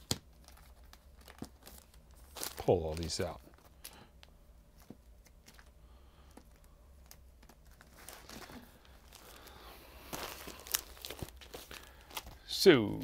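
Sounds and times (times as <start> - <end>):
record sleeves rustling: 0.0 - 13.0.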